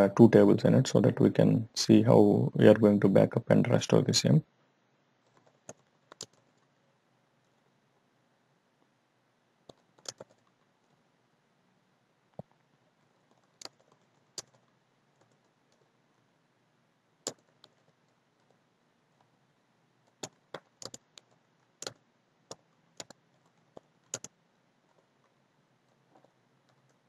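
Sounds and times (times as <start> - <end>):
faint keyboard typing: 5.2 - 6.8, 9.6 - 11.1, 12.3 - 16.3, 17.2 - 19.4, 20.0 - 27.0.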